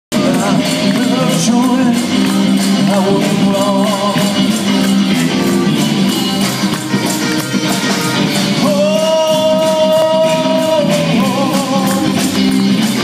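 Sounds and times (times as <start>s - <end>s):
man singing: 0.1s - 4.9s, 8.5s - 13.0s
electric guitar chords: 0.1s - 13.0s.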